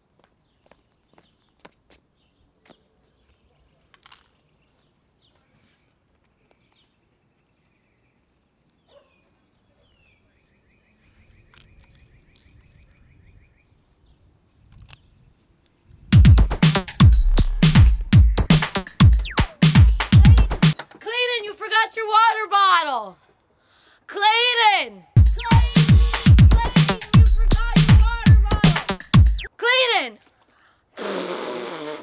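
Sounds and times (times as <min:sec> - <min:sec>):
faint bird chirps: 0:02.3 - 0:14.2
rapid bird trill: 0:16.2 - 0:20.8, 0:25.2 - 0:29.5.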